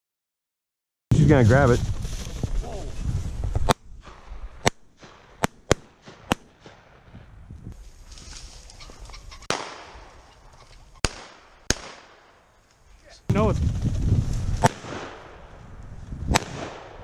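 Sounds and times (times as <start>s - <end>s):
shotgun shots: 3.6s - 6.8s, 9.4s - 10.2s, 11.0s - 12.4s, 14.6s - 15.4s, 16.3s - 17.0s.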